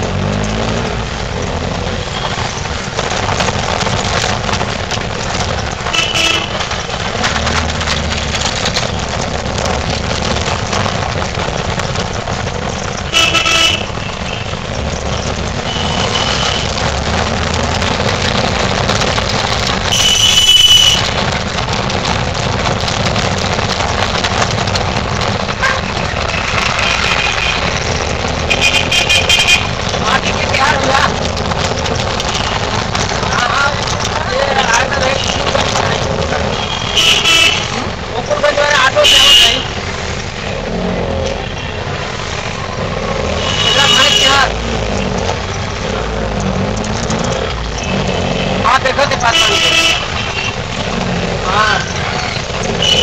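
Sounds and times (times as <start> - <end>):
rickshaw engine and road noise: 0.0 - 53.0
vehicle horns tooting: 5.8 - 6.8, 13.1 - 14.7, 15.6 - 16.9, 19.8 - 21.3, 26.2 - 27.9, 28.5 - 29.8, 34.6 - 35.9, 36.5 - 38.0, 38.7 - 39.8, 43.4 - 44.6, 47.8 - 50.7, 52.6 - 53.0.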